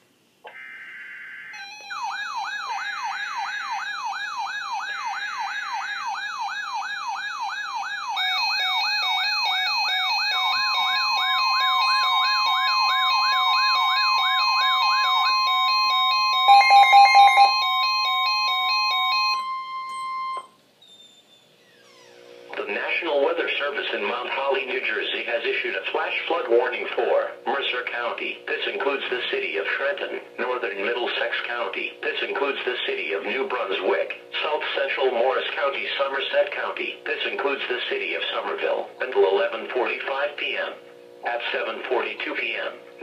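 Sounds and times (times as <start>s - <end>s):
fast warbling siren: 0.5s - 20.4s
steady warning tone: 0.5s - 20.6s
rapid beeps: 1.6s - 20.4s
stepped beeping tones: 1.6s - 20.5s.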